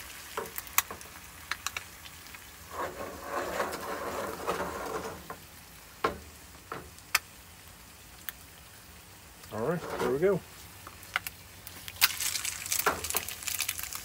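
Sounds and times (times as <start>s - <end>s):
fat popping and crackling: 0.0s - 7.4s, 9.4s - 14.0s
pan scraping on stove grate: 2.6s - 5.4s, 9.6s - 10.4s.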